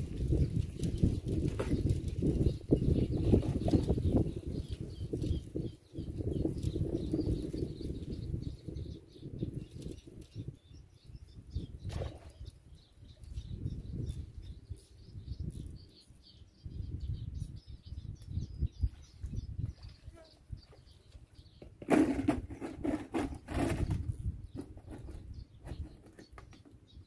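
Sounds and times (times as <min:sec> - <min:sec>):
wind rumbling on microphone: 0:00.0 - 0:27.0
faint high bird chirps: 0:01.6 - 0:21.8.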